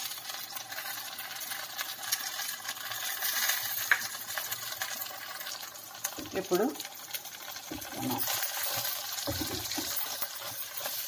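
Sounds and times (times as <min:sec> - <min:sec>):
vegetables sizzling in pot: 0:00.0 - 0:11.0.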